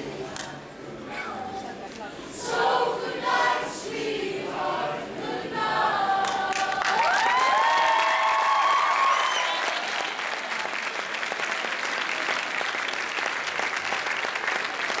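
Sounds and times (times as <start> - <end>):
boys' choir held chord: 2.4 - 6.8
audience applauding: 6.2 - 15.0.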